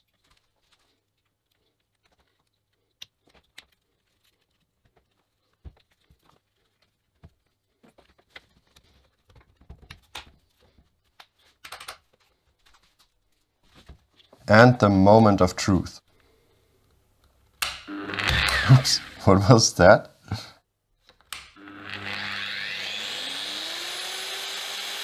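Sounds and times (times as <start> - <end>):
plastic parts clicking: 9.7 - 12.8.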